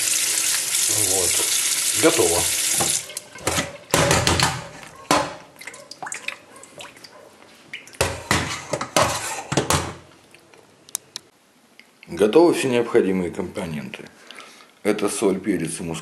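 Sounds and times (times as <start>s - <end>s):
water dripping: 0.0s - 3.5s, 5.6s - 8.1s
metal colander clattering in sink: 2.7s - 5.4s.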